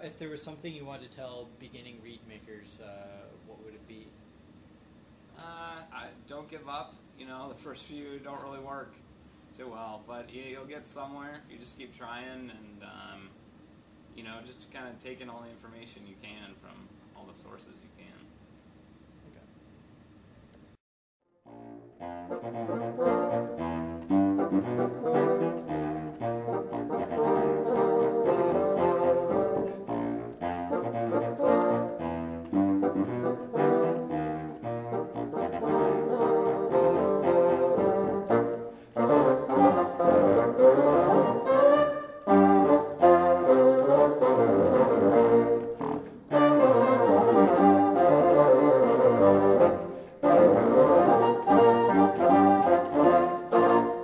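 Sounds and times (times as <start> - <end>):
bassoon playing classical music: 21.5 - 54.0.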